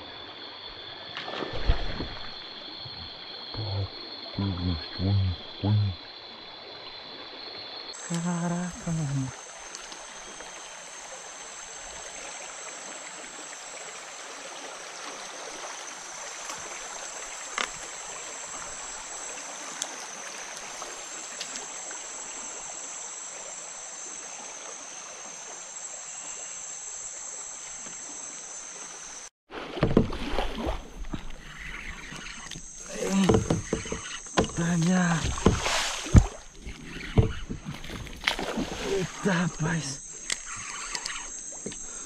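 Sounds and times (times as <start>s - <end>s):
high-pitched drone: 2.9s - 6.0s
faint ticks: 8.0s - 10.1s, 17.4s - 17.9s, 19.7s - 21.8s, 39.5s - 42.0s
loud splashing: 29.5s - 31.2s, 34.6s - 36.6s, 37.8s - 39.3s
water rushing past kayak: 29.5s - 39.9s.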